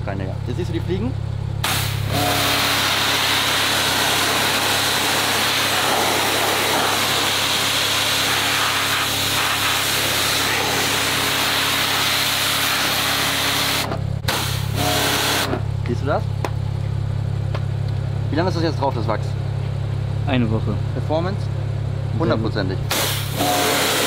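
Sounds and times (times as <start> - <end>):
pressure washer spray hissing: 1.6 - 15.5, 22.9 - 24.0.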